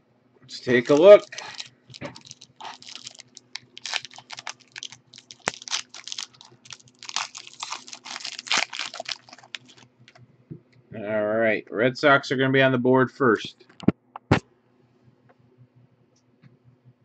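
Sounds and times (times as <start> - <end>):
foil wrapper crinkling: 0.6 - 9.8.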